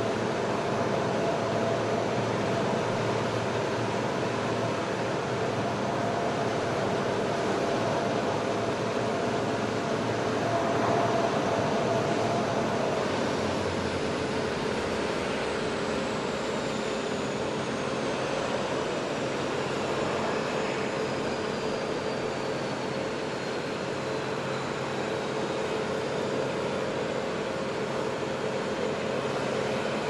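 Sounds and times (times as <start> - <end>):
aircraft engine roar: 0.0 - 30.0
high whine falling in pitch: 5.2 - 16.3.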